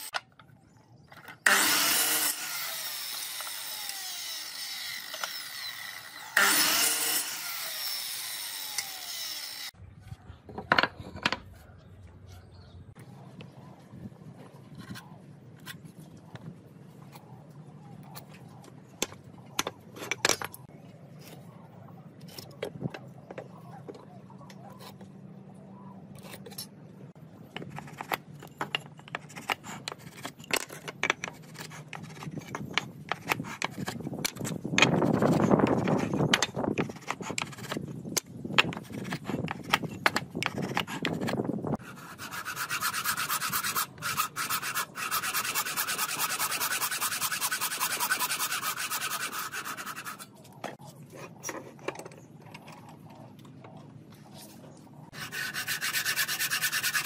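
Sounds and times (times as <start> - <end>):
hand saw cutting wood: 1.4 - 9.7, 38.8 - 50.3, 55.1 - 57.0
marking gauge scraping wood: 38.6 - 51.9, 55.1 - 57.0.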